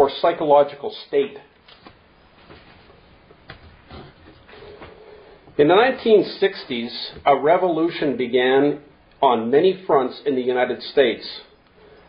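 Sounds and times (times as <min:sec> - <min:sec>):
soft rustles: 0:01.6 - 0:05.0.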